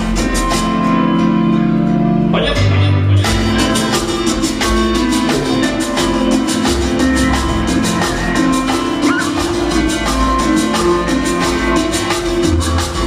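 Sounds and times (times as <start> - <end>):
loud dance music: 3.3 - 13.0.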